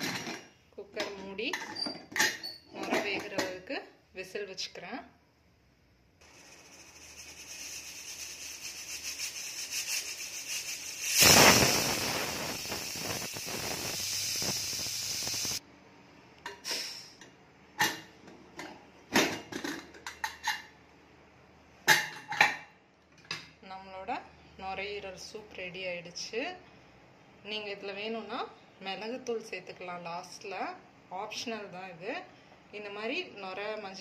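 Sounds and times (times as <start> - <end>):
pressure cooker hissing: 6.2 - 15.6
pressure cooker whistle: 6.8 - 15.6.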